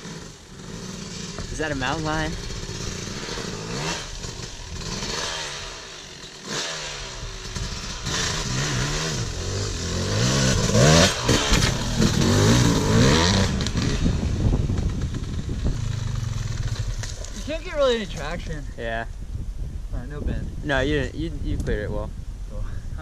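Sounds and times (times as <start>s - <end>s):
dirt bike engine revving: 0.0s - 18.2s.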